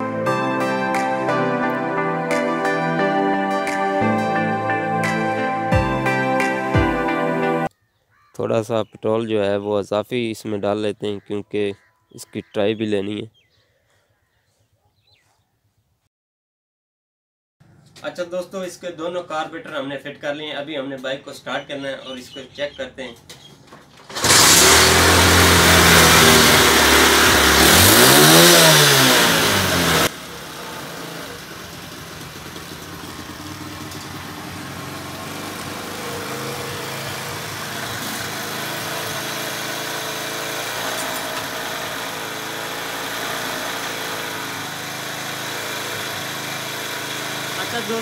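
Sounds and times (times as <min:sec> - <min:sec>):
motorcycle engine revving: 0:24.1 - 0:48.0
motorcycle engine idling: 0:29.7 - 0:48.0.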